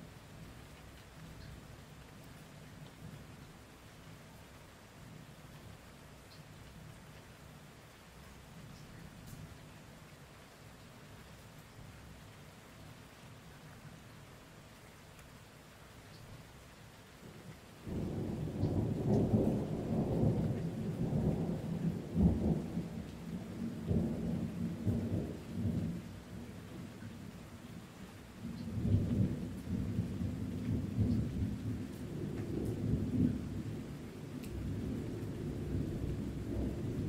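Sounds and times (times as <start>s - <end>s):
faint rain hiss: 0.0s - 37.0s
deep thunder rumbling: 34.5s - 37.0s.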